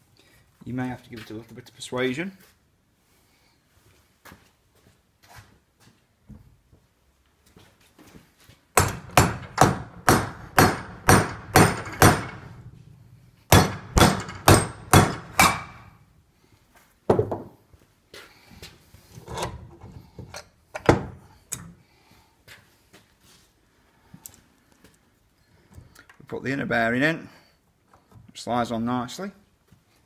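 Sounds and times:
hammer striking metal hub: 0:08.8 - 0:12.6, 0:13.5 - 0:15.9.

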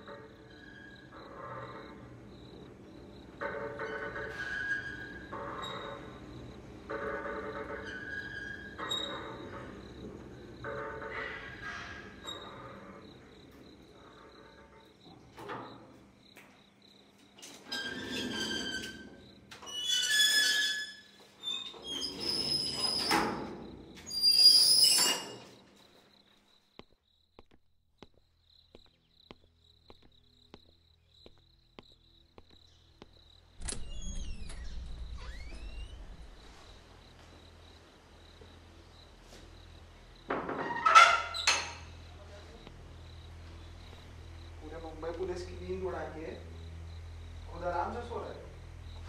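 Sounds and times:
metal gate squealing and rattling: 0:00.0 - 0:01.9, 0:03.4 - 0:06.2, 0:06.9 - 0:09.7, 0:17.5 - 0:25.6, 0:33.6 - 0:36.7, 0:40.4 - 0:42.0
crickets chirring: 0:00.0 - 0:49.0
door creaking open: 0:10.6 - 0:13.1, 0:17.3 - 0:25.8, 0:32.5 - 0:37.8, 0:40.2 - 0:42.1
hinge squeaking: 0:17.7 - 0:25.6
low rumble: 0:33.5 - 0:37.8.

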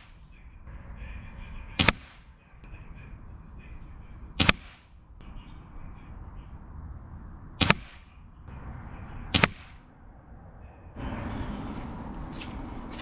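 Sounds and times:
air rifle shots: 0:01.7 - 0:02.4, 0:04.4 - 0:05.0, 0:07.5 - 0:08.2, 0:09.3 - 0:09.9.

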